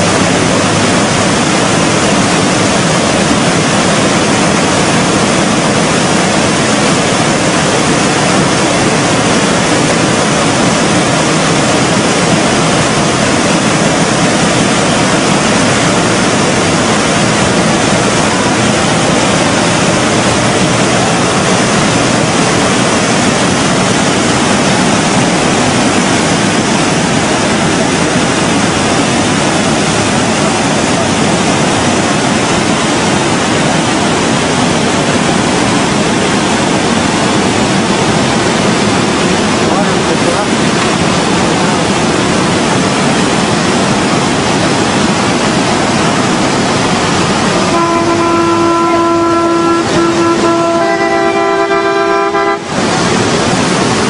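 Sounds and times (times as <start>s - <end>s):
river floodwater rushing: 0.0s - 54.0s.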